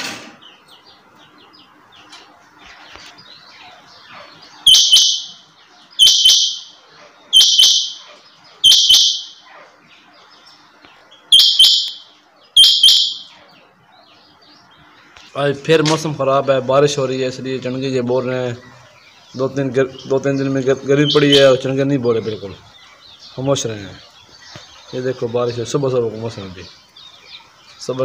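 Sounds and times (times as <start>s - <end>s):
faint chirping: 0.5s - 28.0s
quail harsh metallic calls: 3.5s - 9.8s, 11.2s - 14.3s.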